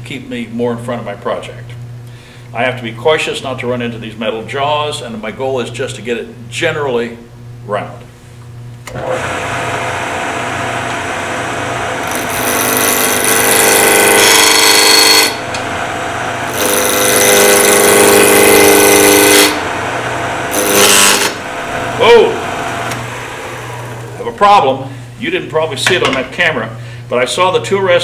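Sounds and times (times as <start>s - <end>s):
wood lathe motor hum: 8.9s - 24.4s
gouge cutting spinning wood: 9.0s - 24.3s.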